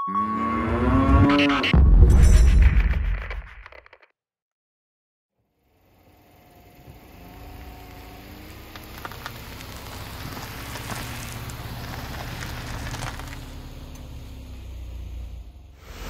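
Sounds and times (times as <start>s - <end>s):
car engine running: 5.5s - 16.0s
tyres crunching over gravel: 6.9s - 14.4s.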